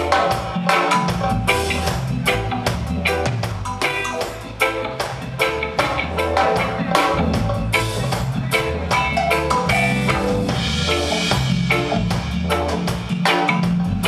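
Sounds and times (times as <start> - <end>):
drum kit beat: 0.0 - 14.0
electric bass: 0.0 - 14.0
electric guitar: 0.0 - 14.0.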